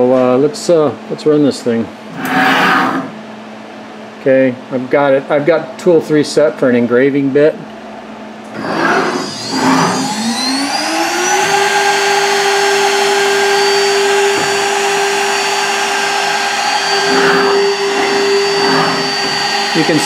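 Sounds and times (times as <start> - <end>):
electric spindle whine: 2.1 - 3.2, 8.5 - 20.0.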